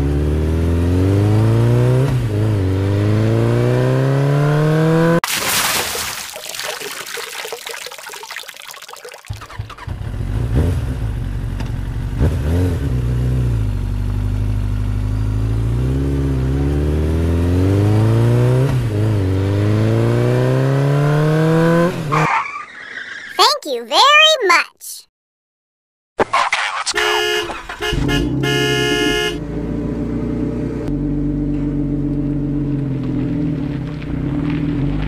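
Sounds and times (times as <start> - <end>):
engine revving: 0.0 - 5.2, 9.5 - 13.8, 14.6 - 22.2, 26.9 - 35.0.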